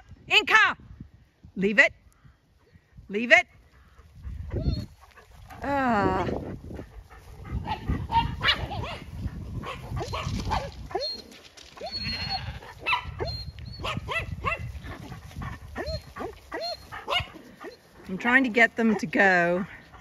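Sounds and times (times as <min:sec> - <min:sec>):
small dogs yapping: 0:04.5 - 0:05.3, 0:07.5 - 0:17.9.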